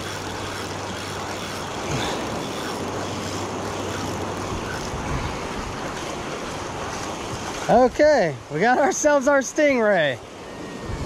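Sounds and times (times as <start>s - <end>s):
wind noise: 4.2s - 8.0s, 10.3s - 11.0s.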